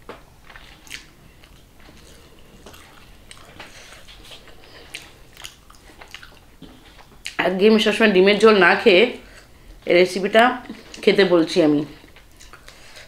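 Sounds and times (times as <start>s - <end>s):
wet squishing of food: 0.4s - 7.4s.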